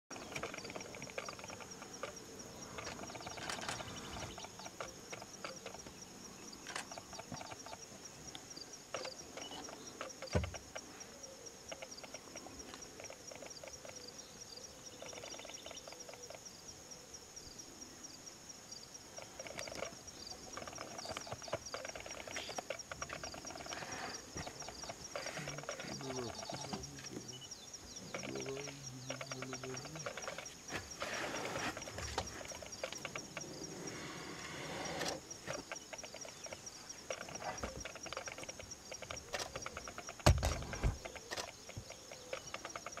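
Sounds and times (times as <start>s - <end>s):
bird calls chirping: 0.1s - 7.9s, 8.9s - 17.1s, 19.1s - 43.0s
pulsing insect chorus: 0.1s - 43.0s.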